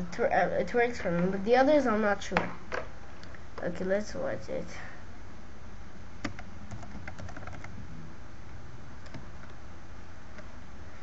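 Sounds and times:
steady low hum: 0.0 - 11.0
computer keyboard typing: 6.2 - 7.8, 9.0 - 9.6.

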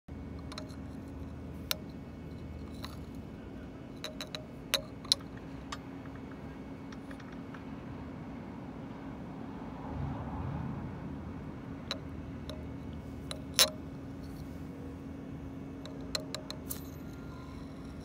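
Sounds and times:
low background hum: 0.1 - 18.0
metal spinning top clicking on glass: 4.0 - 5.8, 15.8 - 18.0.

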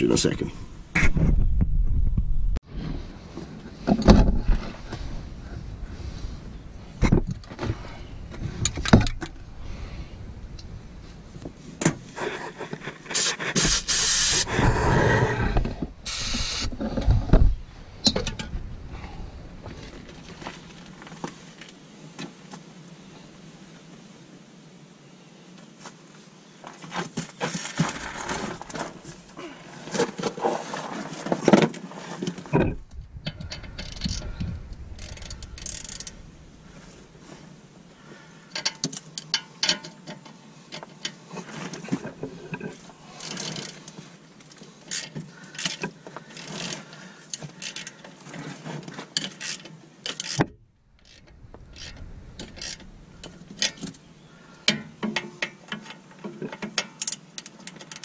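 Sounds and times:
tools scraping and handling: 26.9 - 37.6, 38.6 - 58.0
hand ratchet clicking: 33.4 - 34.3, 34.9 - 36.2, 44.9 - 46.8, 47.6 - 48.0, 49.3 - 50.4, 51.0 - 52.9.

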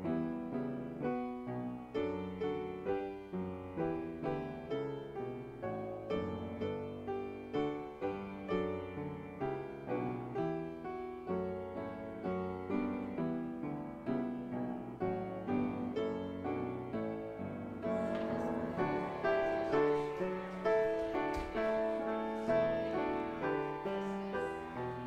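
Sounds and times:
slow hymn-like piano chords: 0.0 - 25.0.

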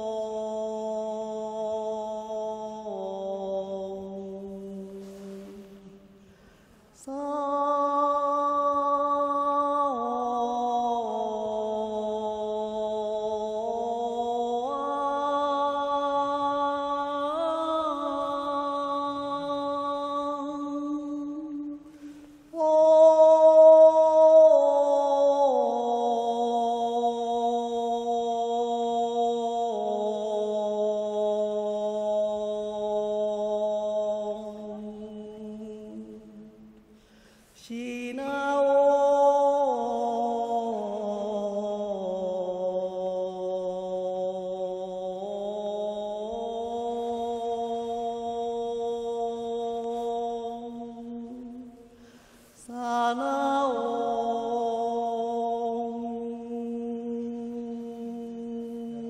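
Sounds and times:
woman chanting in long sung notes: 0.0 - 6.1, 7.0 - 21.9, 22.5 - 36.6, 37.6 - 51.8, 52.6 - 59.0
woman taking a breath: 6.2 - 6.9, 36.9 - 37.6, 51.9 - 52.6.

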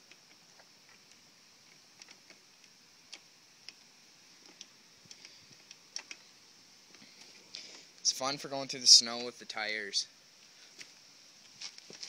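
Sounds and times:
faint irregular clicks and ticks: 0.0 - 8.1.

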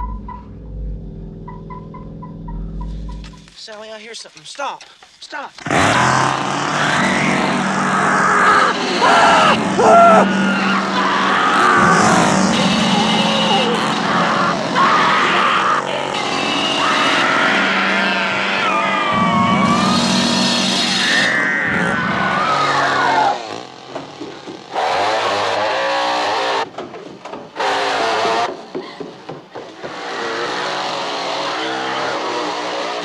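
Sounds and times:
chainsaw running and revving: 5.7 - 10.5, 22.5 - 26.7, 29.9 - 33.0
woman screaming: 8.1 - 12.1.

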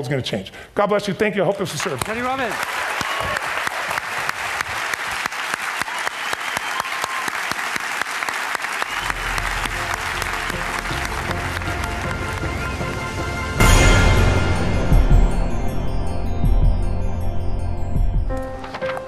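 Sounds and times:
large audience applauding: 1.7 - 13.6.

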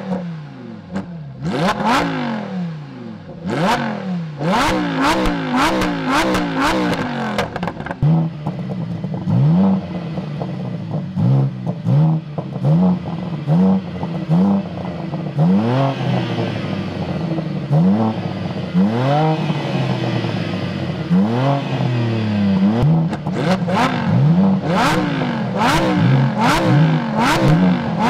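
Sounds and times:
sports car engine revving: 0.0 - 28.0
exhaust crackles and pops: 5.2 - 9.2.

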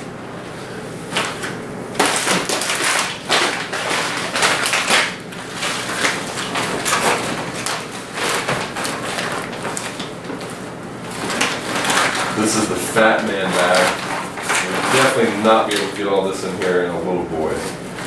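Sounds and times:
fabric bag rustling and crinkling: 2.0 - 16.2.

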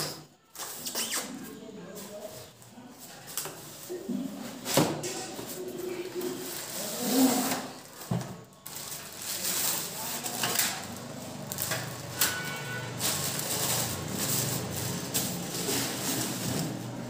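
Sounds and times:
plastic packaging crinkling: 5.9 - 17.0.

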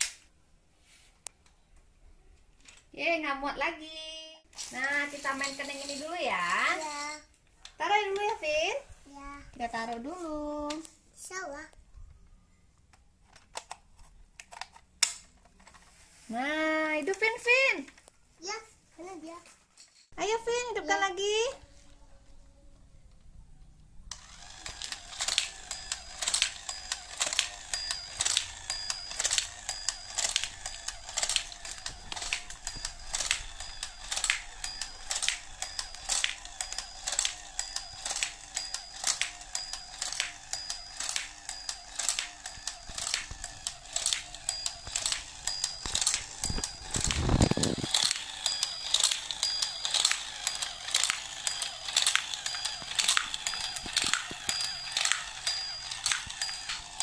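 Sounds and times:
toy motor whirring: 4.6 - 8.6, 24.1 - 57.0
dominoes clicking: 24.1 - 57.0.

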